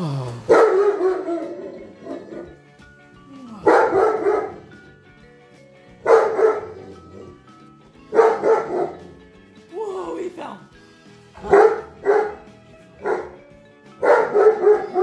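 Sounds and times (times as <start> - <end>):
dog barking: 0.5 - 2.6, 3.6 - 4.8, 6.0 - 7.3, 8.1 - 9.2, 11.4 - 13.4, 14.0 - 15.0.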